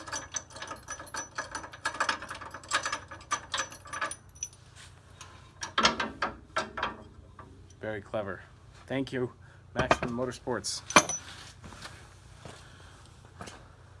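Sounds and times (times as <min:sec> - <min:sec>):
metal tool clinking against spring: 0:00.0 - 0:04.6, 0:10.8 - 0:11.3.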